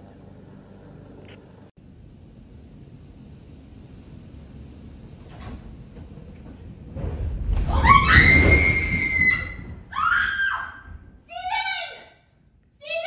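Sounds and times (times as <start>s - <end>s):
tree crashing down: 7.0s - 10.1s.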